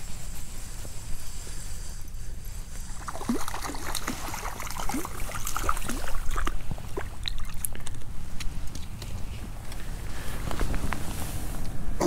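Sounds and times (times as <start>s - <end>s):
fish splashing at surface: 3.0s - 7.9s.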